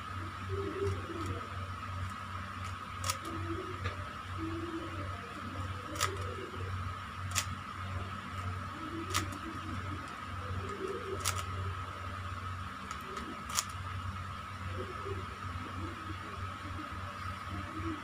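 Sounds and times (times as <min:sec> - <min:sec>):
steady background hum: 0:00.0 - 0:18.0
puzzle cube layers clicking: 0:02.0 - 0:03.4, 0:05.9 - 0:06.3, 0:07.3 - 0:07.6, 0:09.0 - 0:11.6, 0:12.9 - 0:13.8.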